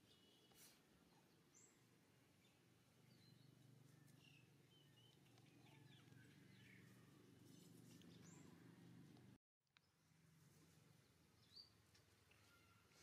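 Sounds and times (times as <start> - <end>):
distant bird chirps: 0.0 - 10.0
faint background hum: 0.0 - 13.0.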